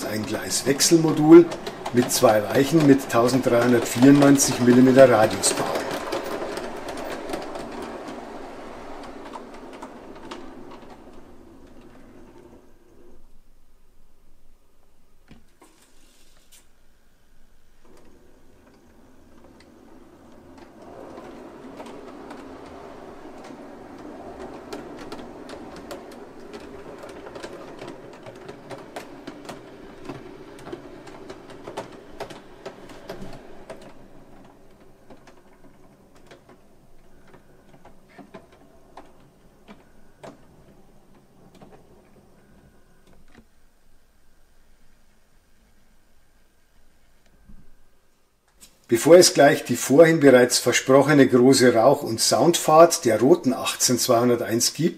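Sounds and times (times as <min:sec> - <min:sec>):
model train motor whirring: 0:00.0 - 0:12.7, 0:17.8 - 0:40.4
wheels clicking on rails: 0:00.0 - 0:54.9.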